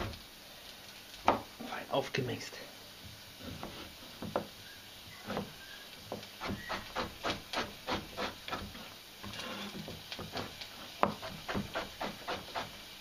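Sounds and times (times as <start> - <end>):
pieces sliding on board: 3.4 - 4.0, 8.2 - 10.6.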